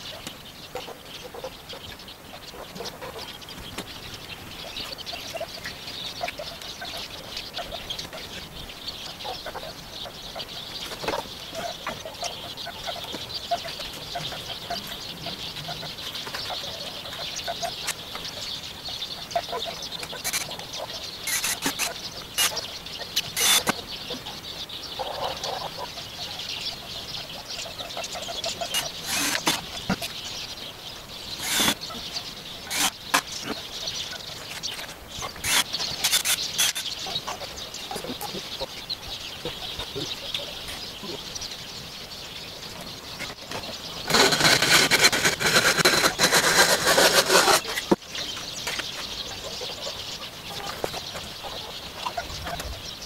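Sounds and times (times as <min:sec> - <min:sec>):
loud dense noise: 0:20.0 - 0:22.6.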